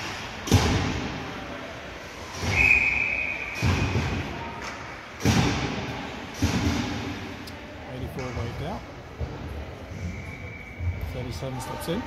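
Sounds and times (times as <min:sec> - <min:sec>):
dull echoing thuds: 0:05.2 - 0:07.3.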